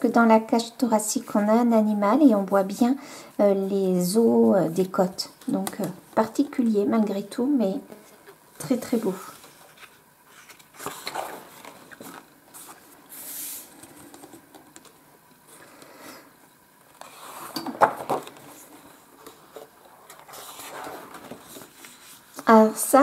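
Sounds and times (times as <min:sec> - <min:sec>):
paper pages rustling: 0:08.2 - 0:15.0, 0:16.8 - 0:22.5.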